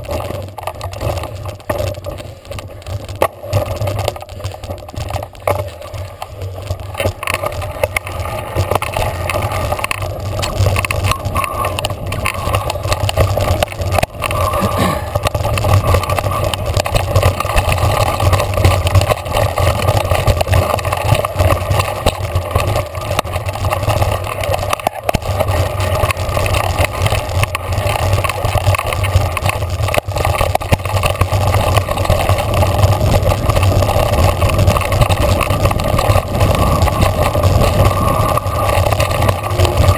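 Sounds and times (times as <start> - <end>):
bike rattling over rocks: 0.0 - 39.9
tyre rumble: 0.0 - 39.9
wind buffeting microphone: 30.7 - 39.9.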